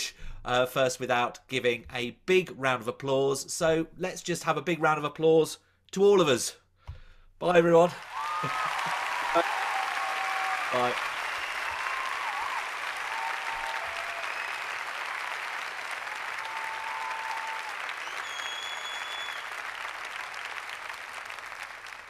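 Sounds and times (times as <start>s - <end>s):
crowd applause: 7.9s - 22.0s
whistles from crowd: 8.1s - 14.8s, 16.3s - 19.7s.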